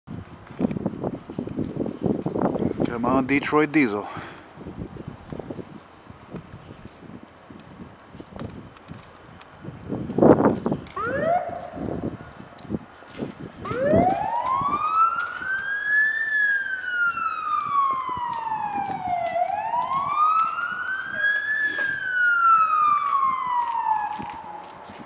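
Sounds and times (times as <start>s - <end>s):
fire engine siren wailing: 10.5s - 25.0s.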